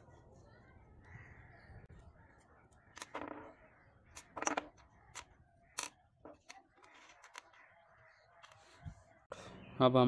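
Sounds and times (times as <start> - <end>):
metal parts clicking on wooden table: 2.9 - 7.6.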